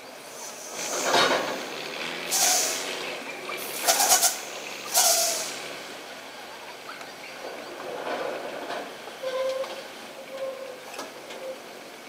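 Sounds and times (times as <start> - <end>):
truck air brakes hissing: 0.1 - 6.1
brake squeal: 0.1 - 11.8.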